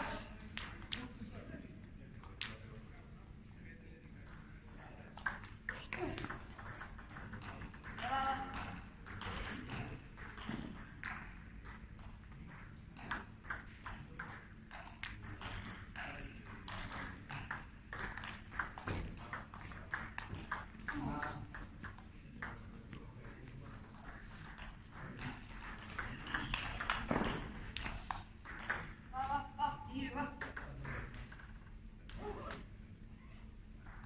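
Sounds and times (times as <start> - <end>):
table tennis ball clicking: 5.2 - 22.7, 23.8 - 29.0.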